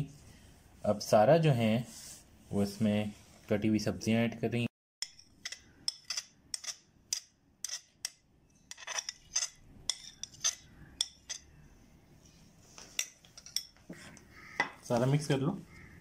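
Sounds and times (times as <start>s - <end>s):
metal spoon clinking on plate: 5.0s - 11.5s.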